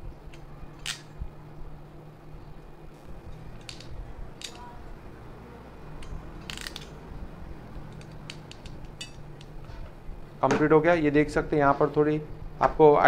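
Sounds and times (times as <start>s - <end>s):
ratchet pliers clicking: 0.3s - 1.1s, 3.3s - 4.7s, 6.0s - 7.0s, 7.7s - 9.6s.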